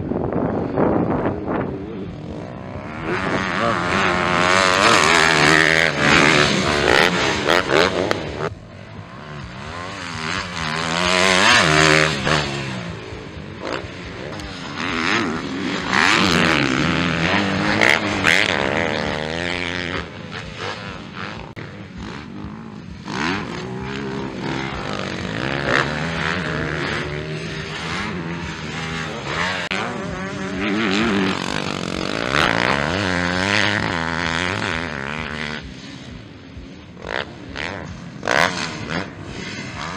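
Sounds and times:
motocross bikes revving past: 0.0 - 39.9.

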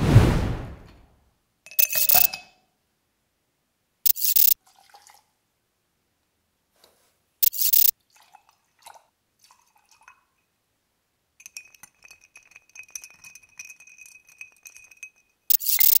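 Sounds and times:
short loud noise burst: 0.0 - 1.1
bar spoon stirring ice: 1.8 - 2.3, 11.4 - 16.0.

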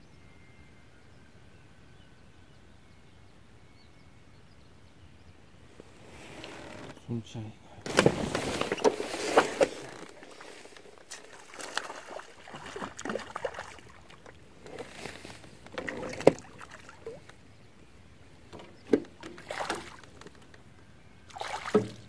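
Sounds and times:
water splashing: 7.9 - 14.9, 15.7 - 17.4, 19.2 - 20.3, 21.3 - 22.0.

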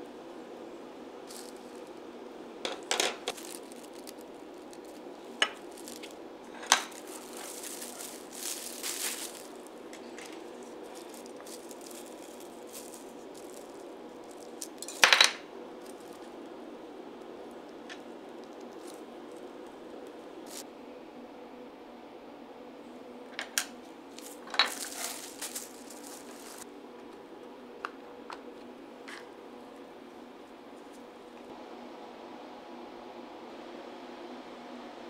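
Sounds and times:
faint steady hum: 0.0 - 35.0
plastic wrap rustling: 1.2 - 2.0, 2.7 - 16.6, 17.2 - 20.6, 24.1 - 26.7
kitchen tools clinking on table: 14.8 - 15.4.

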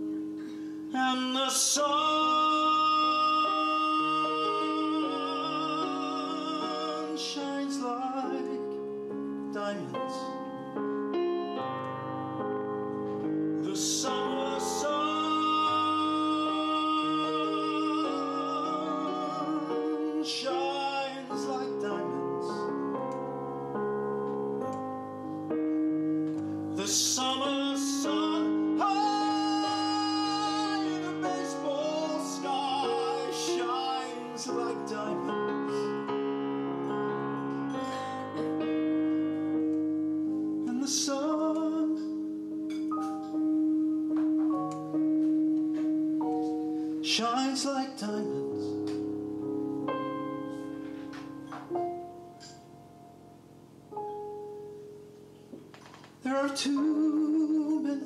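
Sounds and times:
piano: 0.0 - 58.0
man singing a slow ballad: 0.9 - 10.6, 13.6 - 23.1, 26.7 - 36.2, 40.5 - 42.4, 47.0 - 49.1, 56.1 - 58.0.

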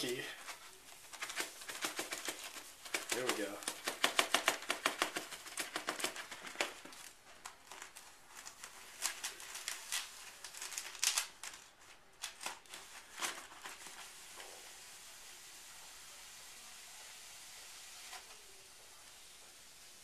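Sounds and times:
paper funnel crinkling: 0.0 - 15.1.

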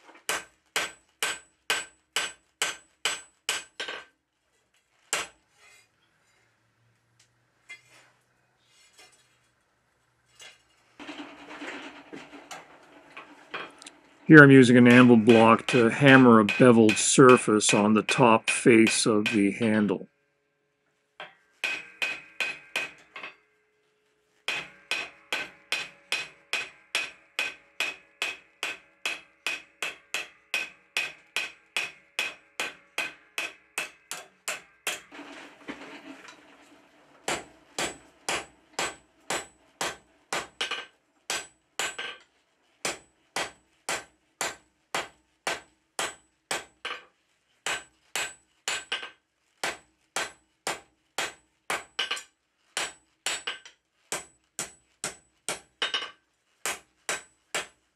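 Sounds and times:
hammer ringing on anvil: 14.6 - 19.9, 21.2 - 23.5, 24.5 - 35.1, 37.3 - 42.2.

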